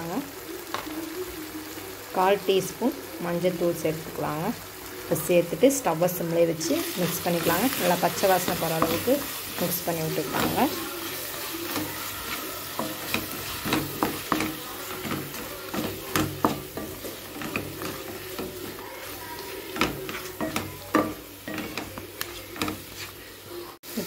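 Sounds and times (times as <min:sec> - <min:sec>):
low sizzle: 0:00.0 - 0:24.0
spatula scraping a pan: 0:06.6 - 0:23.4.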